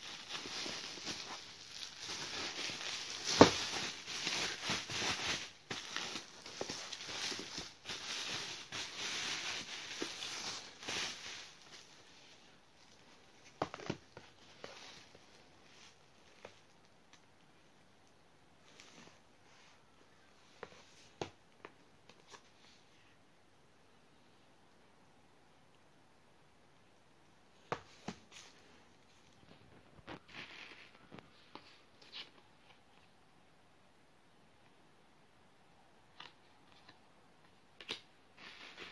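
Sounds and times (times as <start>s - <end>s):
bubble wrap rustling and crinkling: 0.0s - 17.0s, 27.8s - 32.4s, 37.8s - 38.9s.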